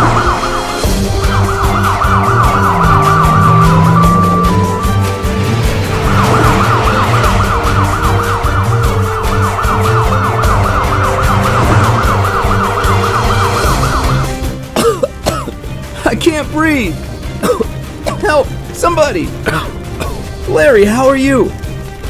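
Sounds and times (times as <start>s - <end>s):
police siren yelping: 0.0s - 14.5s.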